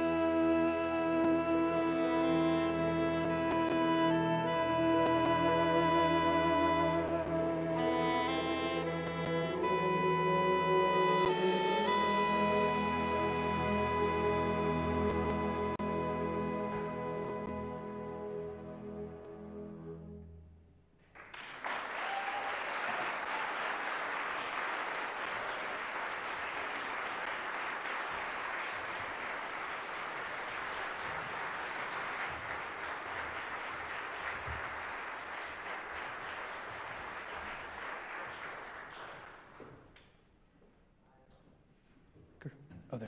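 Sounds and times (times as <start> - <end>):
audience applauding: 21.0 - 40.0.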